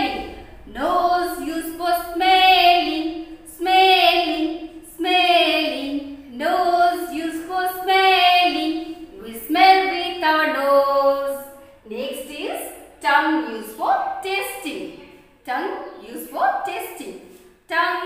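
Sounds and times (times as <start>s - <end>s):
woman singing a children's rhyme: 0.0s - 18.0s.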